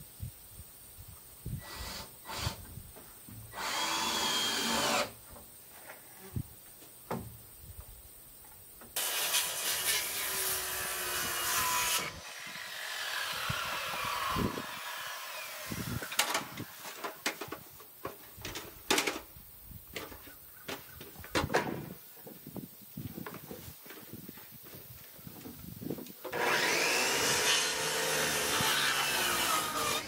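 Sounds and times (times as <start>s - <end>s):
power saw cutting wood: 3.5s - 5.2s, 9.0s - 17.1s, 26.3s - 30.0s.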